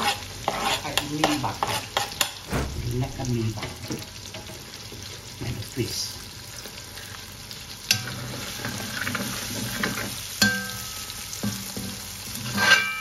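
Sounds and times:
food sizzling in oil: 3.1s - 13.0s.

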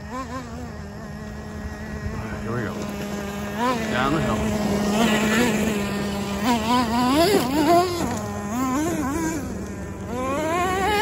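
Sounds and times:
rc truck engine revving: 0.0s - 11.0s.

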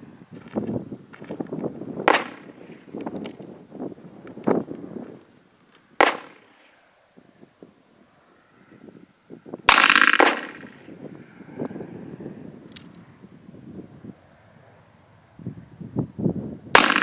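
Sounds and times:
revolver shots: 6.0s - 6.5s, 9.7s - 10.7s.

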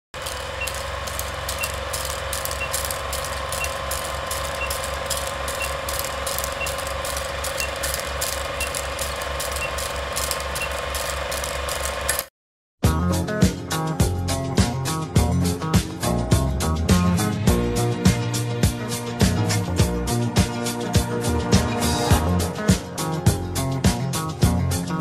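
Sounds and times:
steady hum: 0.2s - 12.1s
film projector clatter: 0.2s - 12.3s
faint high beeps: 0.3s - 0.9s, 1.5s - 8.0s, 8.6s - 9.9s.

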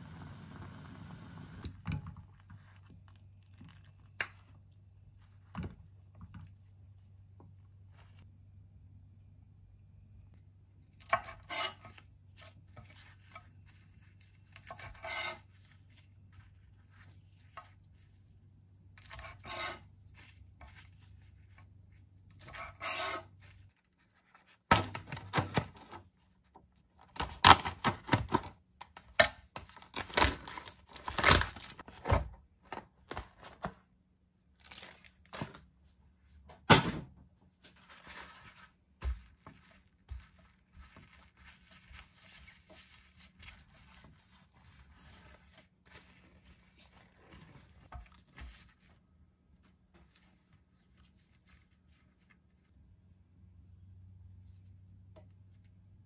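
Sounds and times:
food handling rustles and knocks: 37.6s - 49.0s.

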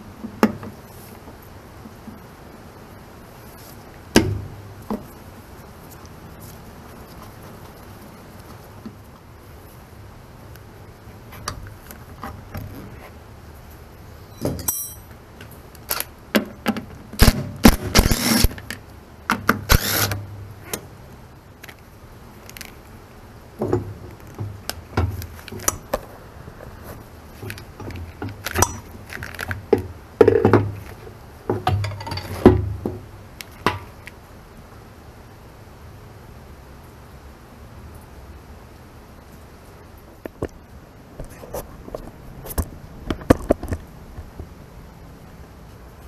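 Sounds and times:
metal tools clinking and rattling: 14.3s - 15.1s.

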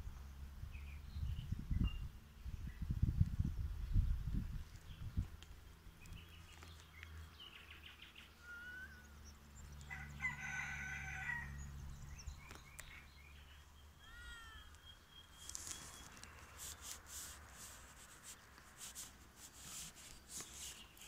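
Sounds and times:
small birds chirping: 0.0s - 21.0s
rooster crowing: 9.9s - 11.7s.

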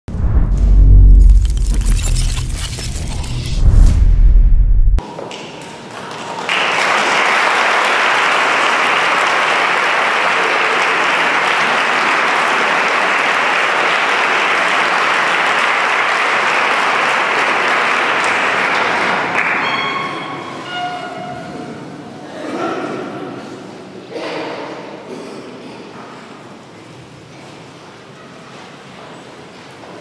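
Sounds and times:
audience applauding: 6.1s - 20.0s.

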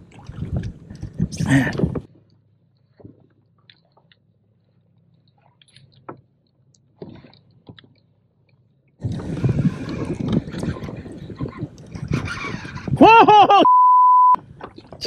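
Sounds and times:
wind and water rushing on microphone: 0.0s - 2.3s, 9.0s - 13.3s, 14.4s - 15.0s.

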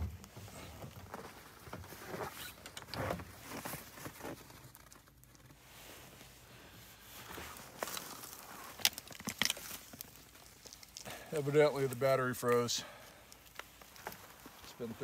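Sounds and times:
jacket and gloves rustling: 0.2s - 15.0s
small clicks and knocks: 8.7s - 11.1s.

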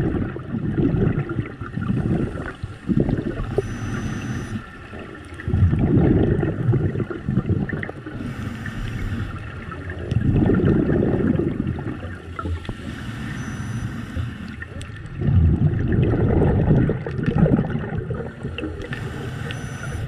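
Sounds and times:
exhaled bubbles gurgling: 0.0s - 20.0s
scuba regulator inhale hiss: 8.2s - 9.4s, 18.9s - 20.0s.

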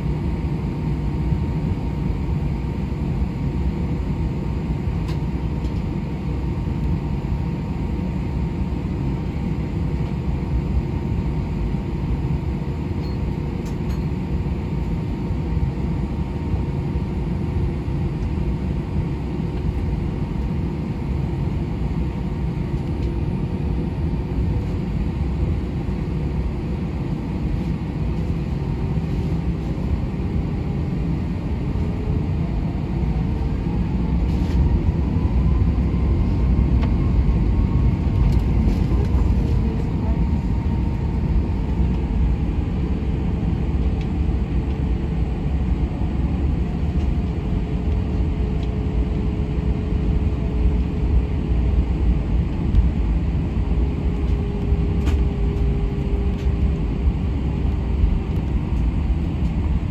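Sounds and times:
aircraft engines rumbling and whining: 0.0s - 59.9s.

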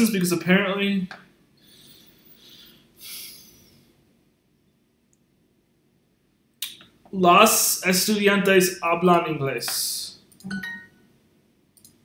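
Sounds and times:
soft breaths close to microphone: 1.6s - 4.0s.

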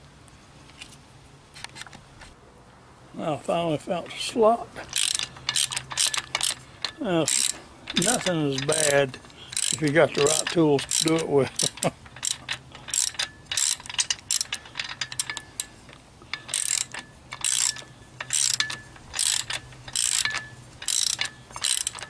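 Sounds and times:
socket ratchet clicking: 4.9s - 22.0s.

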